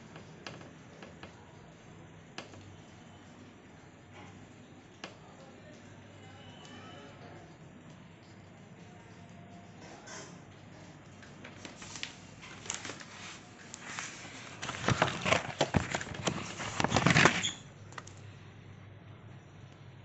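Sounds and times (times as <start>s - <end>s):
faint low hum: 0.0s - 20.0s
paper crackling and rustling: 11.2s - 18.2s.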